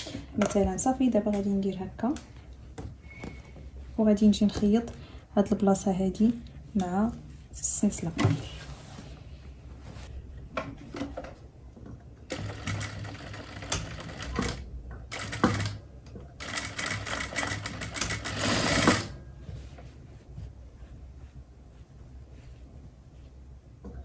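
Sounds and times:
sewing machine stitching: 12.3s - 15.8s, 16.4s - 19.2s.

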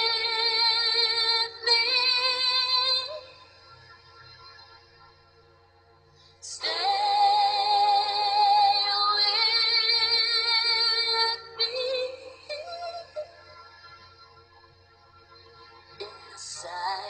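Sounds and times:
woman singing with vibrato: 0.0s - 3.4s, 6.5s - 13.5s, 16.0s - 17.0s.

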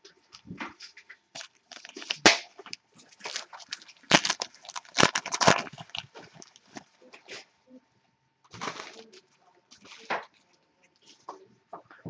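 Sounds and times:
card wrappers crinkling and clicking: 0.2s - 7.3s, 8.5s - 11.4s.

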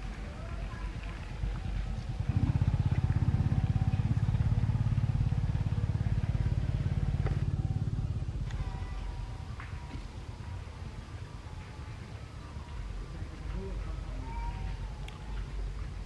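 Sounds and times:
small motorcycle engine running: 0.0s - 13.9s.

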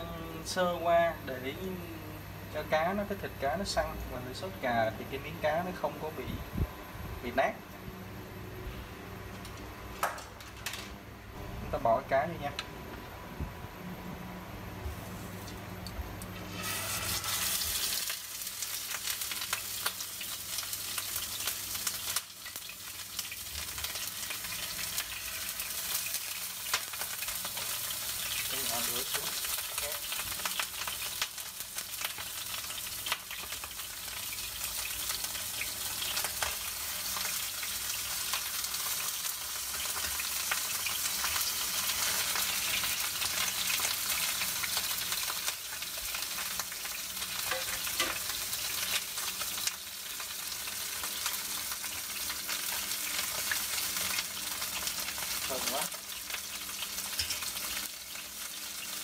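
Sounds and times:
fish sizzling in hot oil: 14.9s - 59.0s.

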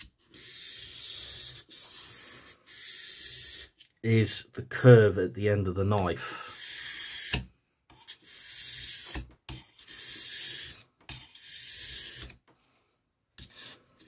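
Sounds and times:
knife scraping on sharpening stone: 6.4s - 12.4s, 13.4s - 14.0s.

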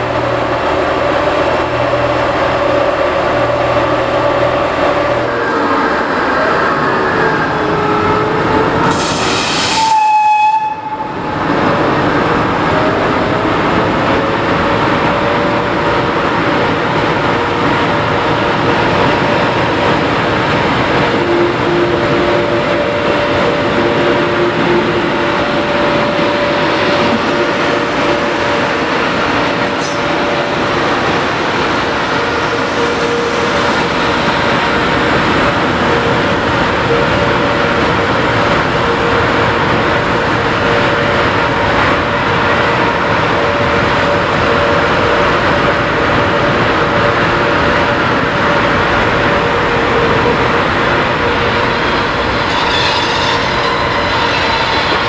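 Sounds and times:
train rolling on track: 0.0s - 55.0s
train horn blast: 9.0s - 11.4s, 21.1s - 26.0s, 49.8s - 55.0s.

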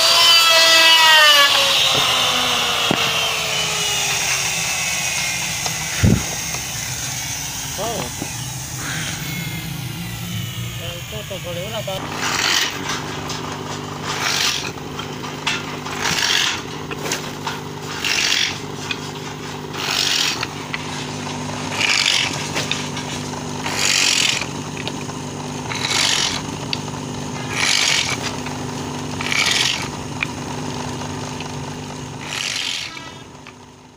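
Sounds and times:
abrasive disc grinding wood: 0.0s - 33.9s
electric motor humming: 0.0s - 33.9s.

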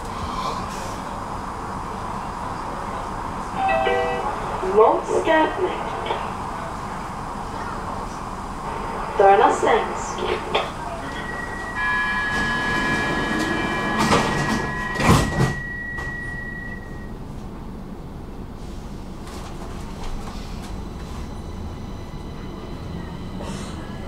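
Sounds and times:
train running noise: 0.0s - 24.0s
train doors shutting: 2.8s - 17.7s, 18.5s - 24.0s
high warning tone: 3.6s - 6.2s, 9.0s - 17.1s.

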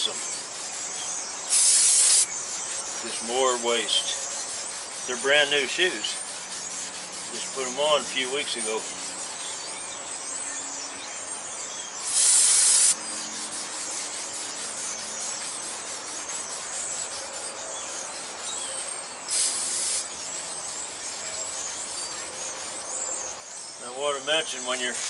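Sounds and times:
rag rubbing brake linings: 0.0s - 9.8s, 12.0s - 23.0s
aerosol spray hissing: 1.5s - 2.3s, 12.0s - 13.0s, 19.3s - 20.1s.

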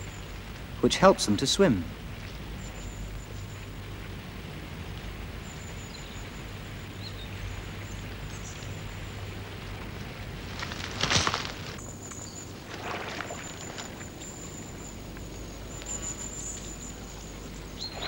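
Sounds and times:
steady hiss: 0.0s - 12.6s.

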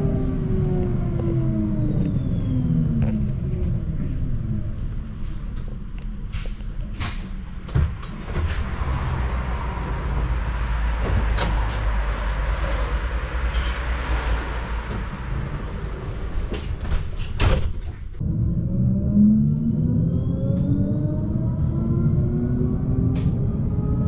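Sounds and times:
tram low rumble: 0.0s - 24.0s
sliding doors closing: 6.2s - 9.6s, 10.8s - 18.1s.

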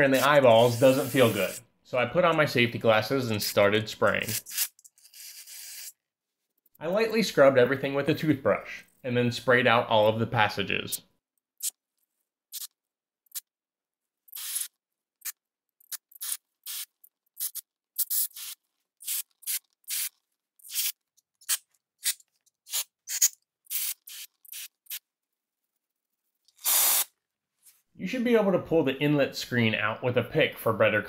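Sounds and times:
aerosol spray hissing bursts: 0.1s - 1.6s, 26.6s - 27.1s.

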